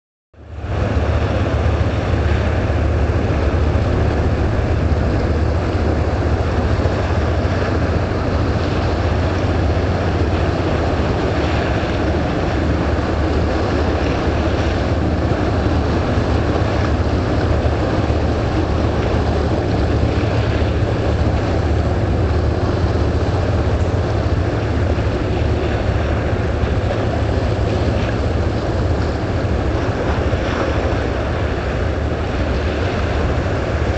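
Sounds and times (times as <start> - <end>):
wind: 0.3 - 33.9
boat engine droning: 0.4 - 33.9
water noise: 0.4 - 33.9.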